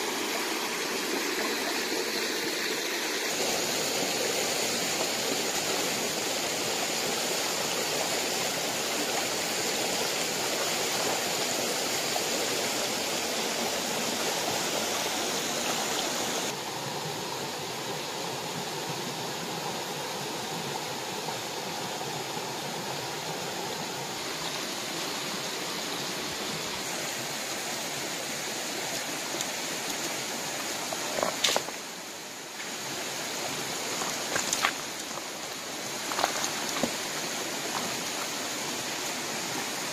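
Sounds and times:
stream rushing over rocks: 0.0s - 39.9s
stones knocking: 31.1s - 31.8s, 33.9s - 37.9s.

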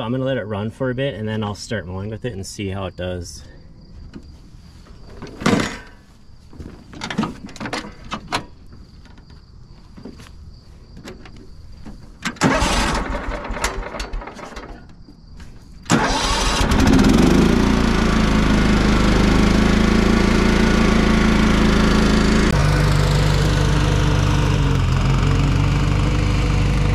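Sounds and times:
starter cranking engine: 12.3s - 14.7s, 15.9s - 26.9s
mower engine running: 12.4s - 14.5s, 15.9s - 26.9s.

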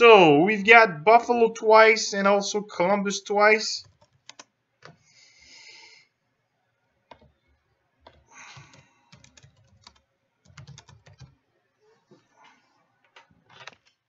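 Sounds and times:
faint keyboard typing: 3.8s - 5.1s, 7.0s - 11.4s, 12.1s - 14.0s.

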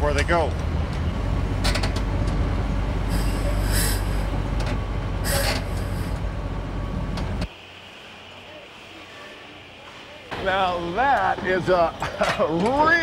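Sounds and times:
crane engine running: 0.0s - 12.1s
air hissing: 3.0s - 4.6s, 5.2s - 6.4s.

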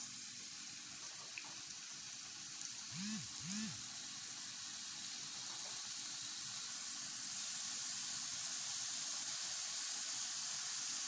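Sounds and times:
chicken sizzling in oil: 3.8s - 11.0s.

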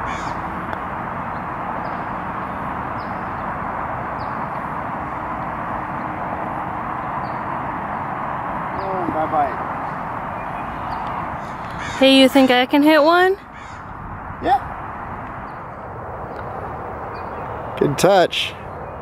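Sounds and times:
outdoor background noise: 0.0s - 19.0s
bird chirping: 1.3s - 4.7s, 7.2s - 12.8s, 15.3s - 17.8s.

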